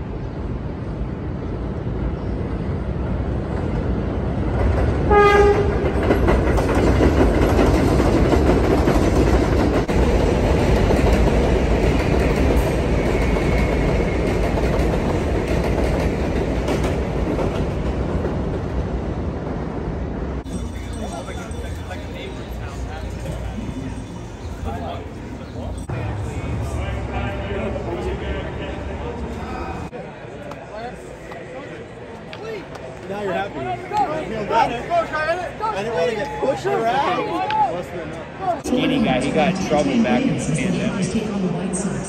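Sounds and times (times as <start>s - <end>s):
train wheels clattering on rails: 4.5s - 18.9s
train horn blast: 5.1s - 6.0s.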